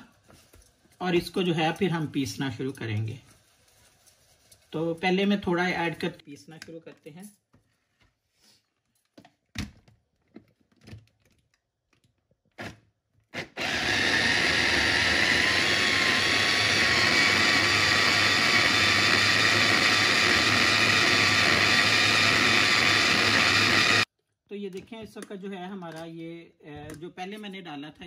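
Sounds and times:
electric food chopper running: 13.4 - 24.1.

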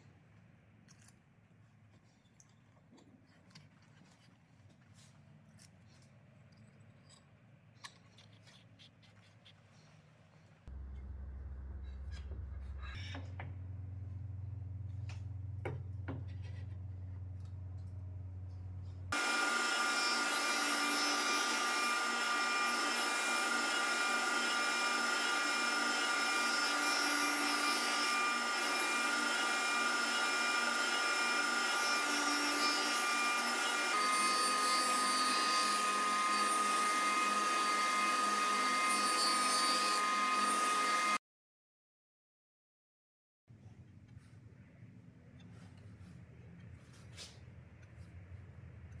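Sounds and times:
low hum: 10.7 - 19.1
table saw cutting wood: 19.1 - 41.2.

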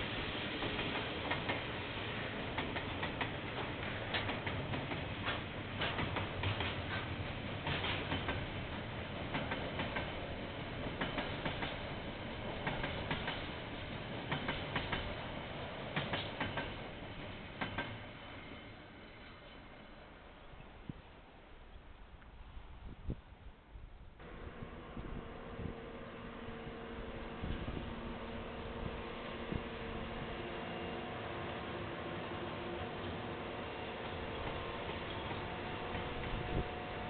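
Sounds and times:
freight train rumbling past: 0.0 - 20.8, 24.2 - 37.0
wheels clacking on track: 0.6 - 1.8, 2.4 - 17.0.

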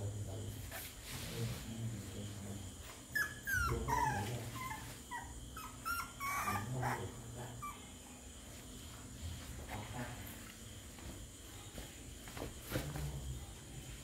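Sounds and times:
puppy whimpering: 3.1 - 8.0.

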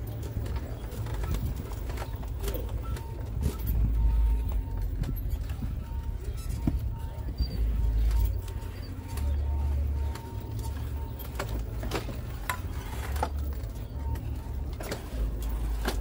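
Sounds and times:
wind rumble on microphone: 0.2 - 8.3.

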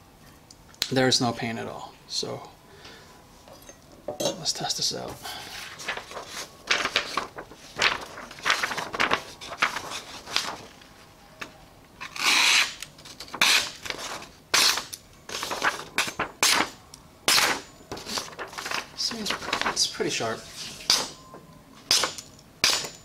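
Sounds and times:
paper rustling: 5.2 - 11.1, 12.6 - 16.8, 17.4 - 21.2
knife slicing paper: 12.1 - 19.8.

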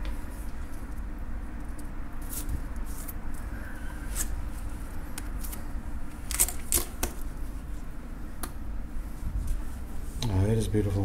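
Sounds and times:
low background hum: 0.0 - 11.0.

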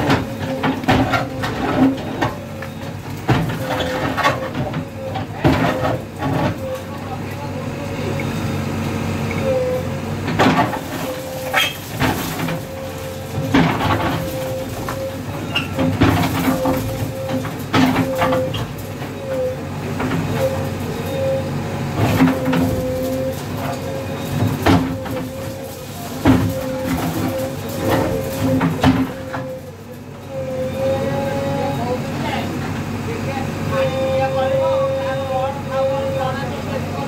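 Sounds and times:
diesel engine and hydraulic whine: 0.0 - 37.0
masonry cracking and falling: 10.3 - 19.4, 22.1 - 29.8.

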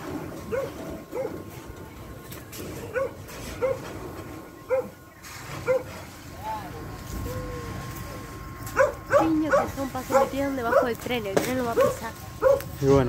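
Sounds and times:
dog barking: 0.5 - 1.4, 2.9 - 3.8, 4.7 - 5.0, 5.6 - 5.9, 8.7 - 11.0, 11.8 - 12.7.

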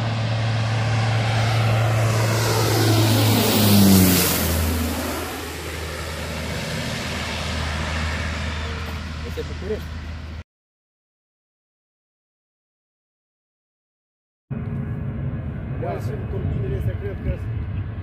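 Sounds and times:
propeller plane passing overhead: 0.0 - 10.4, 14.5 - 18.0.

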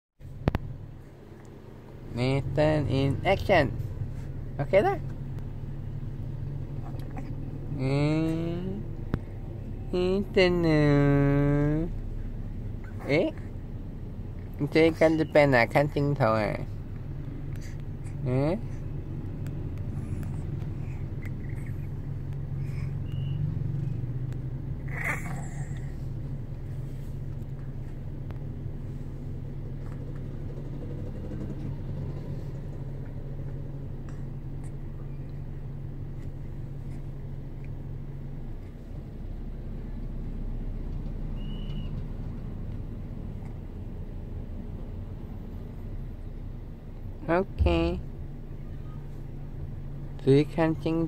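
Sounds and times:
car cabin road rumble: 0.2 - 51.0
low hum: 0.2 - 51.0
baby cooing: 24.9 - 25.9.

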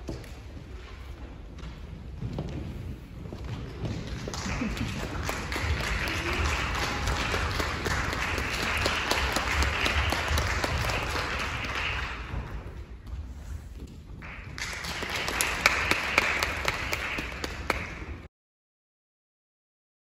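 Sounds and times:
audience applauding: 4.0 - 12.7, 14.2 - 18.3.

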